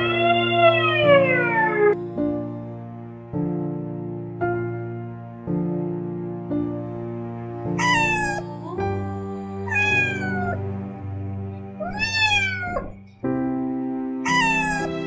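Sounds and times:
cat meowing: 0.0s - 2.0s, 7.8s - 8.4s, 9.7s - 10.6s, 11.8s - 13.1s, 14.2s - 15.0s
soft background music: 0.0s - 15.0s.

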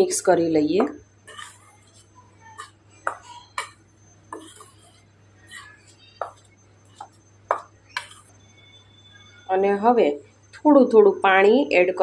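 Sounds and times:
metal spoon scraping a steel bowl: 1.2s - 9.0s.

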